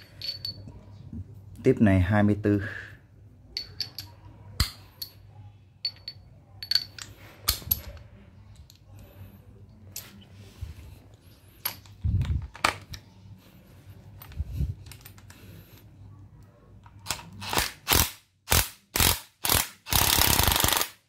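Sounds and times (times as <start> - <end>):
impact wrench bursts: 17.4 - 21.0.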